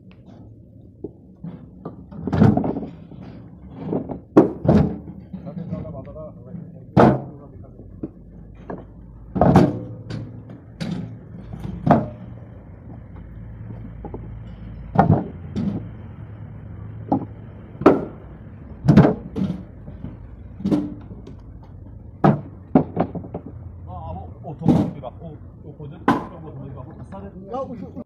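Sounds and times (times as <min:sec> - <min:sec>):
wooden blocks knocking and clattering: 0:01.0 - 0:05.8, 0:06.9 - 0:16.0, 0:17.0 - 0:23.6.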